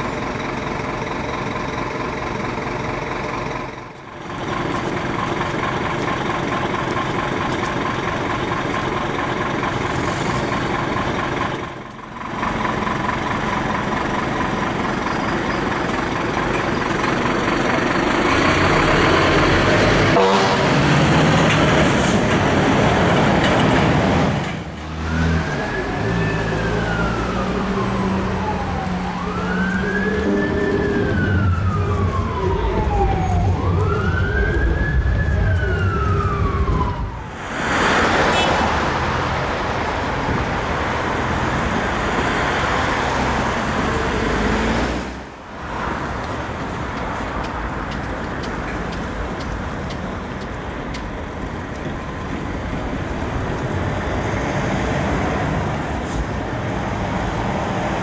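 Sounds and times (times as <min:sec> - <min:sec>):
city traffic: 0:00.0 - 0:58.0
truck engine and road noise: 0:00.0 - 0:58.0
fire engine siren wailing: 0:17.2 - 0:21.9, 0:25.0 - 0:38.5.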